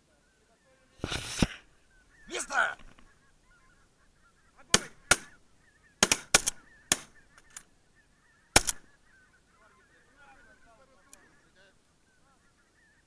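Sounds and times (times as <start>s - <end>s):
geese honking: 0.0s - 13.0s
shotgun shots: 4.7s - 5.4s, 6.0s - 7.1s, 8.6s - 8.8s.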